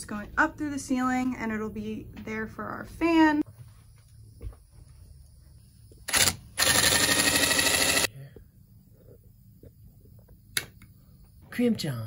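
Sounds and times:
sharp click: 10.5 - 10.9.

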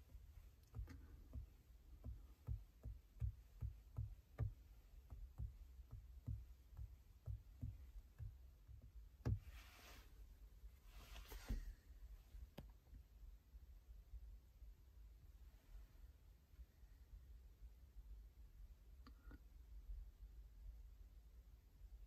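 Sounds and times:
fingertip taps on touchscreen: 0.6 - 9.4.

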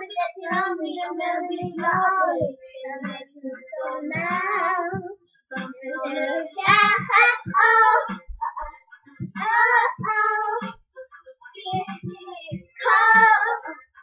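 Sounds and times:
girls singing pop song: 0.0 - 10.9, 11.5 - 14.0.

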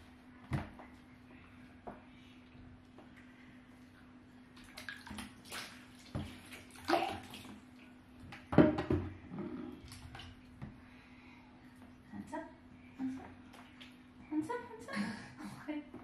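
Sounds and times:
water splashing in bath: 3.9 - 8.8, 9.7 - 10.8.

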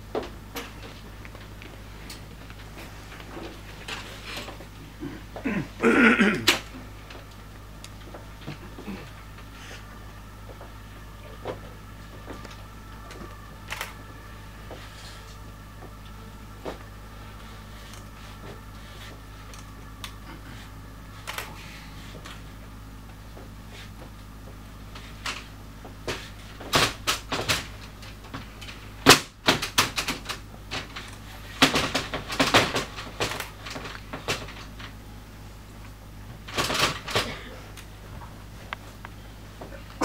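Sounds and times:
low hum: 0.0 - 40.0
wooden folding chair clacking: 29.1 - 34.9.

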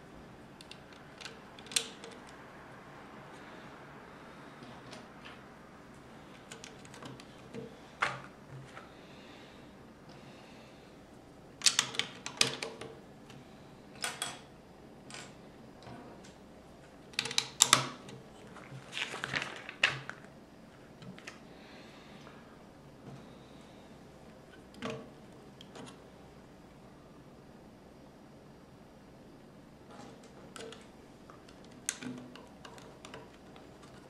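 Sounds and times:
plastic bricks clicking and snapping: 0.6 - 2.4, 11.6 - 12.9.

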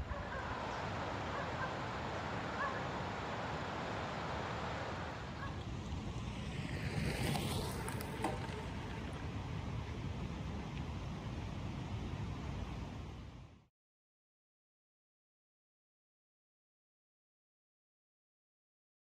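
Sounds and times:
wind noise on microphone: 0.0 - 13.6
bicycle tyres on gravel: 5.8 - 9.8.

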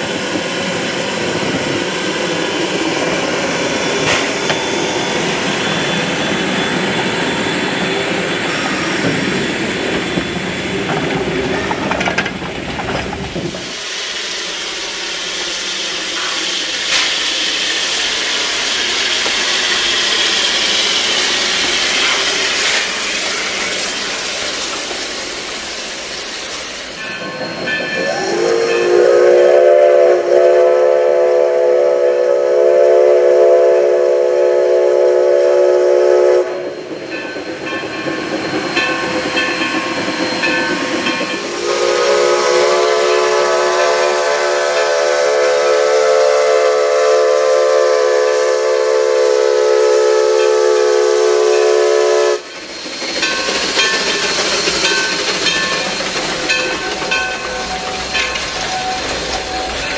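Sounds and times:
steam locomotive rolling past: 0.0 - 59.9
steam whistle blast: 28.0 - 36.9, 41.4 - 52.5.

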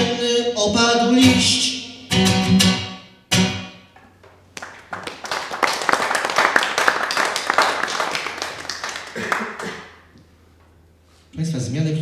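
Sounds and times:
audience applause: 4.6 - 9.9.

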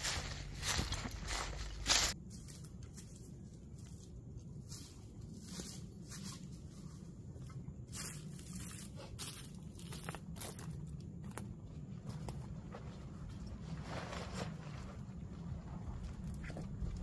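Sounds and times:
footsteps in dry leaves: 0.0 - 7.3, 7.9 - 11.0.

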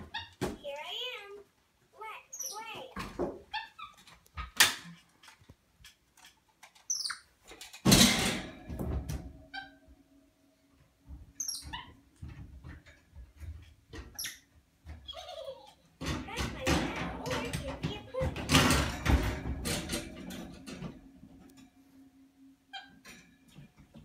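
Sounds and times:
monkeys giving squeaky chirps: 2.3 - 2.7, 6.9 - 7.3, 11.4 - 11.9.

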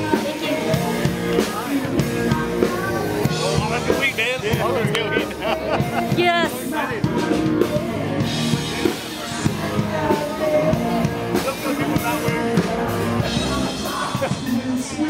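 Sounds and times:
person singing: 0.0 - 4.0, 4.8 - 15.0
drum kit beat: 0.0 - 15.0
rock music: 0.0 - 15.0.

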